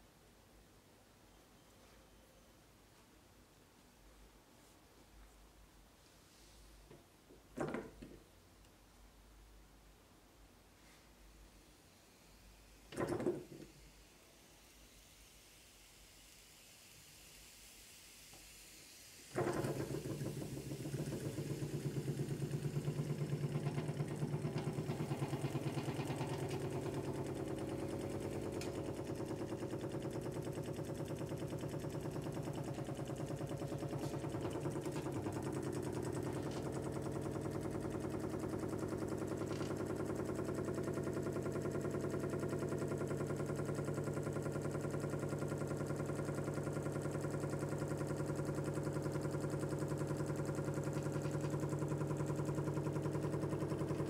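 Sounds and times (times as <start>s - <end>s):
small engine mechanical beat: 19.3s - 54.0s.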